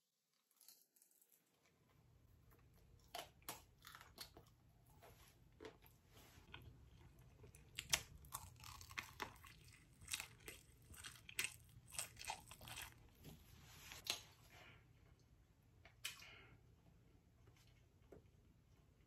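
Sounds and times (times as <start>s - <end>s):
chewing crunchy fried food: 5.5s - 13.4s.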